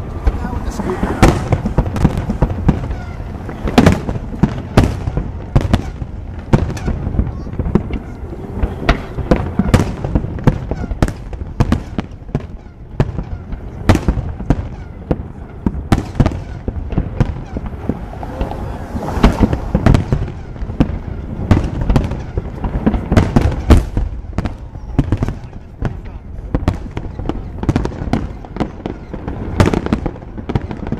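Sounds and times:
fireworks booming and cracking: 0:00.0 - 0:30.9.

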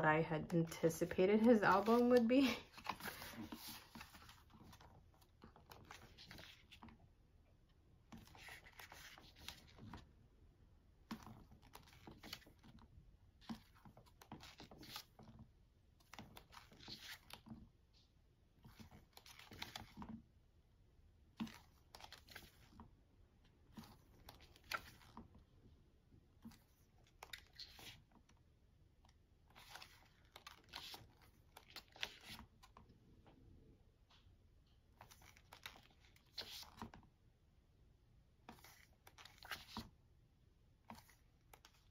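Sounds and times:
pages turning: 0:01.0 - 0:07.0, 0:08.1 - 0:10.0, 0:11.0 - 0:12.8, 0:13.4 - 0:15.4, 0:16.0 - 0:17.6, 0:18.6 - 0:20.2, 0:21.4 - 0:22.8, 0:23.7 - 0:25.3, 0:26.4 - 0:28.2, 0:29.5 - 0:32.8, 0:34.9 - 0:37.1, 0:38.5 - 0:39.9, 0:40.8 - 0:41.9.

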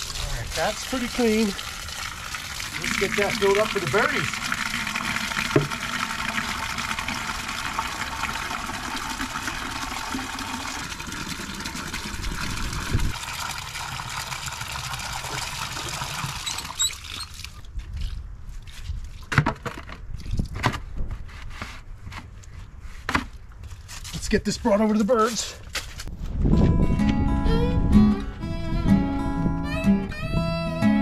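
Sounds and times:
water pouring into plastic bucket: 0:00.0 - 0:18.2.

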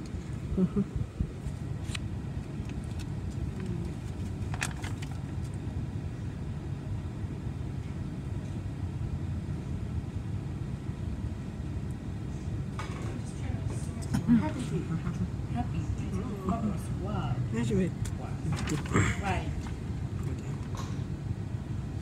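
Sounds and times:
vehicle road noise rumble: 0:00.0 - 0:22.0.

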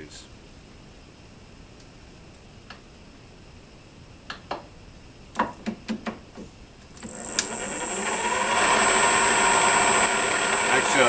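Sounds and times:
high steady whine: 0:06.8 - 0:11.0
metal lathe motor spinning up: 0:06.9 - 0:11.0.

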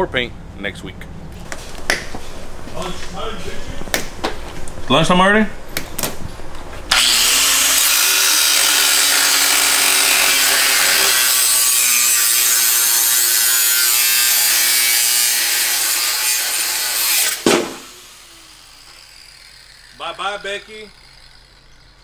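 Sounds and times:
power tool cutting metal: 0:06.9 - 0:21.9
sharp knock: 0:17.4 - 0:17.9.

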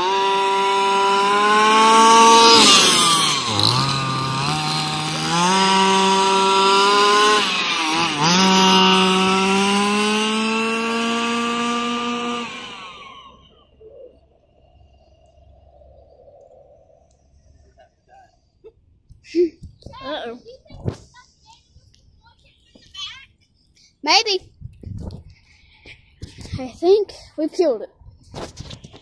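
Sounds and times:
small two-stroke engine revving: 0:00.0 - 0:15.8.

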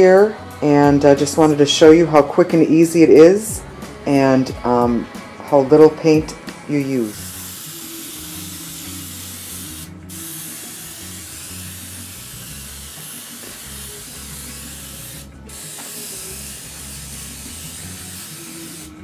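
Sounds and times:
airbrush spraying hiss: 0:07.0 - 0:19.0.

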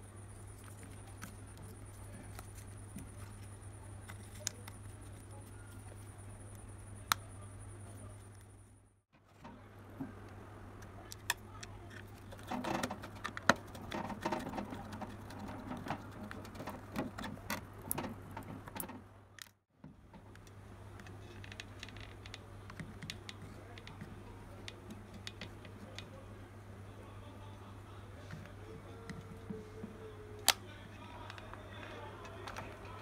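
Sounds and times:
hands handling speaker: 0:30.4 - 0:33.0.

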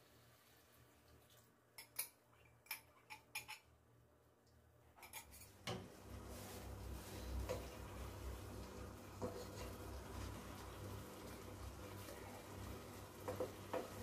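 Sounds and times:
faint sizzle in a pan: 0:00.0 - 0:01.8, 0:05.4 - 0:14.0.

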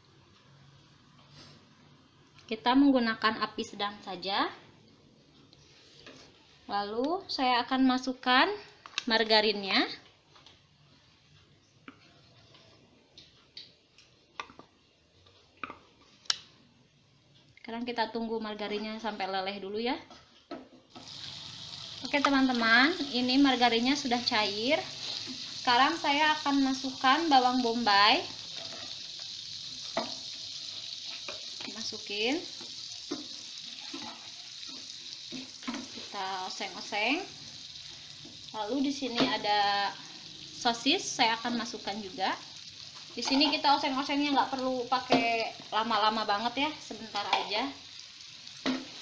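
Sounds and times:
onions sizzling in a frying pan: 0:20.9 - 0:49.0.

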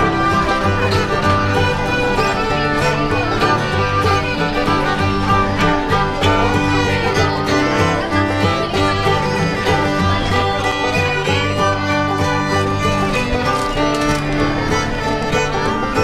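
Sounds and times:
banjo: 0:00.0 - 0:16.0
fiddle: 0:00.0 - 0:16.0
guitar: 0:00.0 - 0:16.0.

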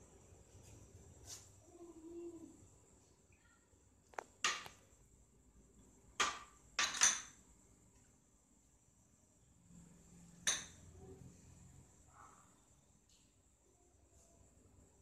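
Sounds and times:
glass bowls clinking on plates: 0:10.5 - 0:10.8.

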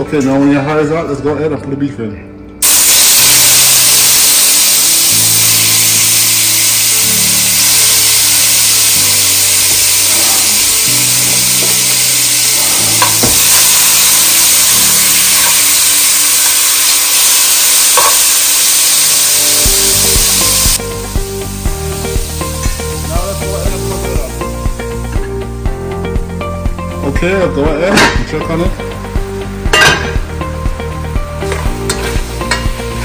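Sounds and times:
meat sizzling in hot oil: 0:02.6 - 0:26.8, 0:28.7 - 0:33.0
background music with a beat: 0:19.6 - 0:33.0
metal spoon knocking: 0:29.7 - 0:30.2.

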